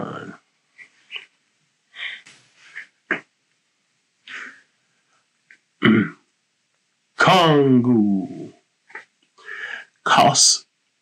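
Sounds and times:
person grunting: 0:05.8 - 0:06.2.

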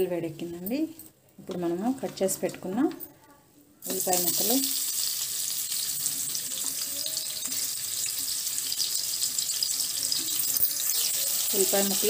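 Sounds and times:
onions sizzling in hot oil: 0:03.8 - 0:12.0.

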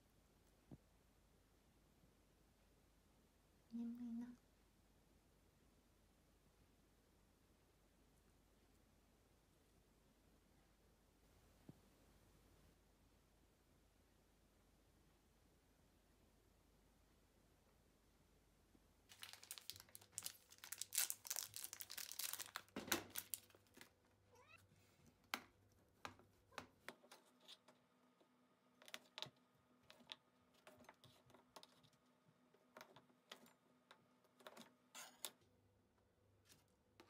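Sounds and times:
crackly rustling: 0:19.1 - 0:35.1.

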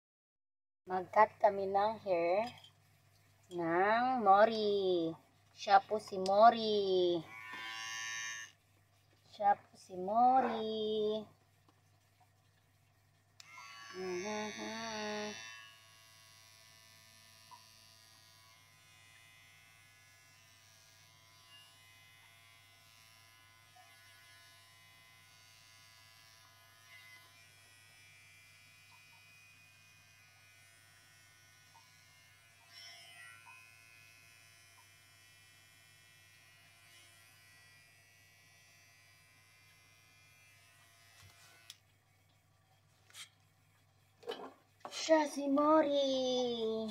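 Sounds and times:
electric hair clipper buzzing: 0:07.2 - 0:08.6, 0:13.4 - 0:41.8.

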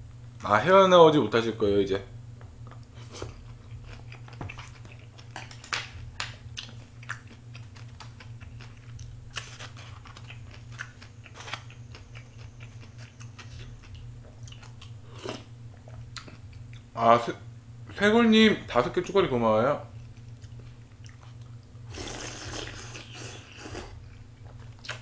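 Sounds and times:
steady low hum: 0:00.0 - 0:25.0
person chewing food: 0:02.6 - 0:16.9, 0:19.9 - 0:25.0.

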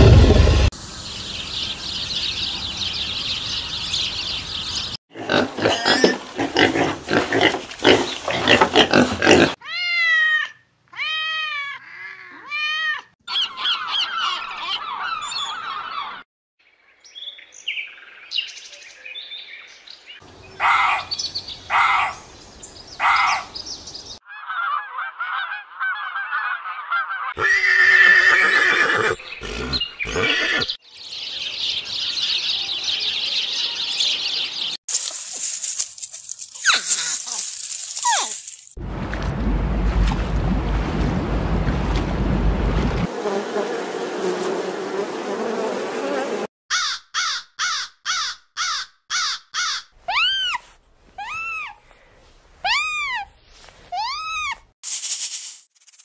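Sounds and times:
animal calls: 0:13.3 - 0:16.2.

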